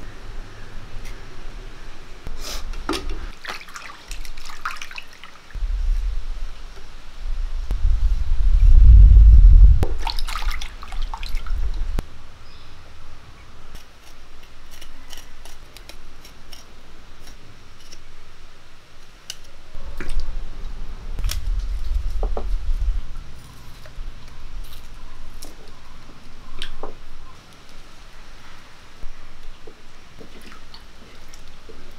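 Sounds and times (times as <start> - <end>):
water dripping and splashing: 2.8 - 5.6, 9.8 - 11.8, 30.2 - 31.9
low rumble: 5.6 - 10.0, 11.4 - 12.3, 19.8 - 24.6.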